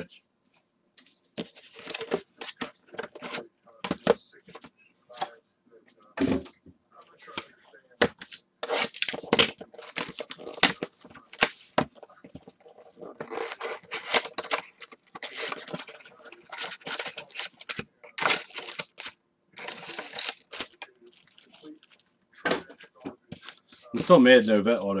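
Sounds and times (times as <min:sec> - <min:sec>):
cardboard tearing and crinkling: 0:08.2 - 0:22.0.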